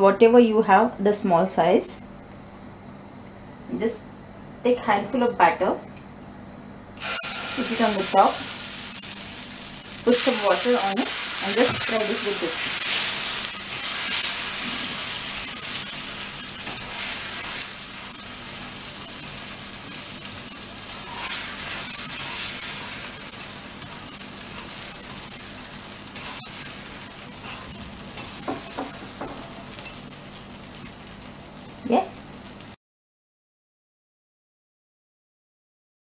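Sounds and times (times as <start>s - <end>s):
batter sizzling on a griddle: 7.0s - 32.8s.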